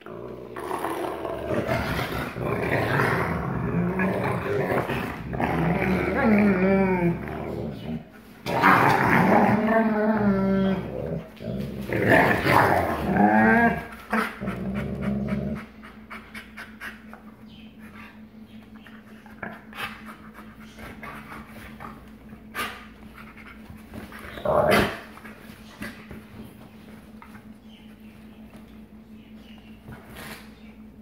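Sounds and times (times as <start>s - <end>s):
dog growling snap: 0.0s - 15.7s
dogs growling: 0.0s - 18.2s, 18.8s - 27.5s.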